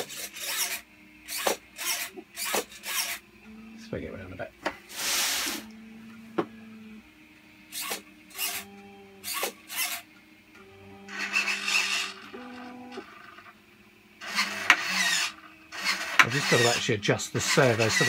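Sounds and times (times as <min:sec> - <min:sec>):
short rasping bursts: 0:00.0 - 0:03.8, 0:04.9 - 0:05.8, 0:07.7 - 0:10.1, 0:11.0 - 0:13.3, 0:14.2 - 0:18.0
servo motors humming: 0:00.0 - 0:18.0.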